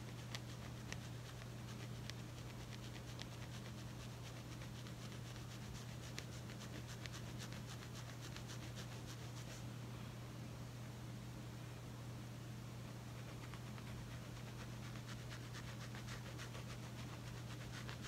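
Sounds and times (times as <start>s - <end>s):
comb scraping scalp: 0.0s - 9.6s.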